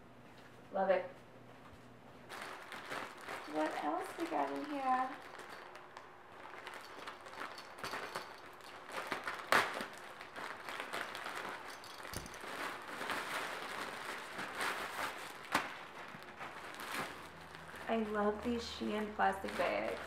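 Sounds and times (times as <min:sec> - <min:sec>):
plastic bags crinkling: 0:02.3 - 0:20.0
sharp plastic crackle: 0:02.3 - 0:20.0.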